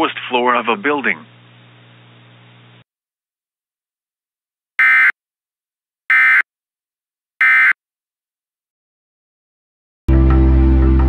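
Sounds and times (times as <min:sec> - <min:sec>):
digital data tone bursts: 0:04.8 - 0:05.1, 0:06.1 - 0:06.4, 0:07.4 - 0:07.8.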